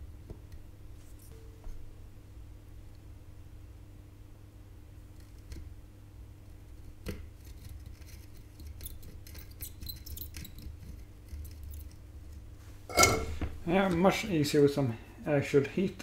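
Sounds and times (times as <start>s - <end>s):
steady low hum: 0.0s - 8.7s, 11.0s - 16.0s
small hand tools clicking and scraping: 7.0s - 12.0s.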